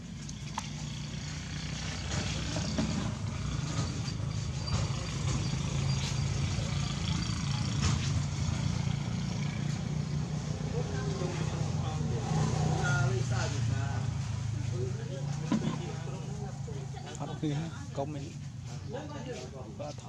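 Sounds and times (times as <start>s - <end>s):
low motor hum: 0.0s - 9.9s.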